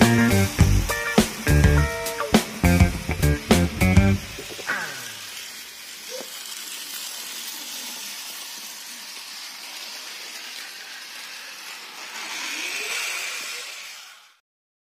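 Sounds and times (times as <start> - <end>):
toy train motor whirring: 0.0 - 14.4.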